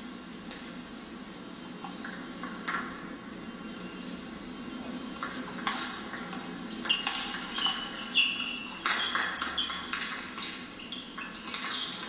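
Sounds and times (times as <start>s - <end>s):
shoes squeaking on floor: 5.0s - 12.0s.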